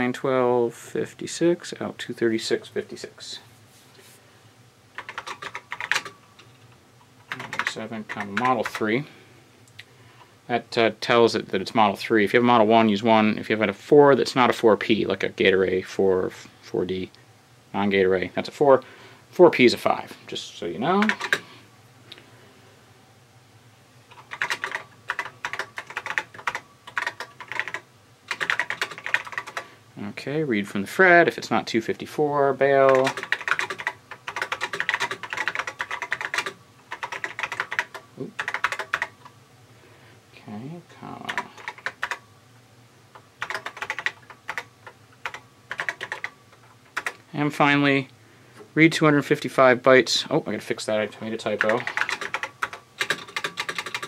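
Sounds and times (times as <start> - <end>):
keyboard keys clicking: 5.0 - 6.6, 24.1 - 29.6, 32.8 - 39.3, 41.3 - 42.2, 43.4 - 47.2, 51.6 - 54.0.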